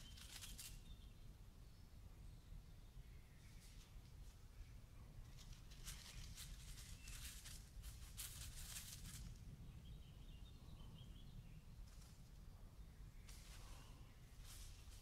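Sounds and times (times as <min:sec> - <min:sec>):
faint low rumble: 0:00.0 - 0:15.0
soft rustling crackles: 0:03.4 - 0:09.5, 0:13.2 - 0:15.0.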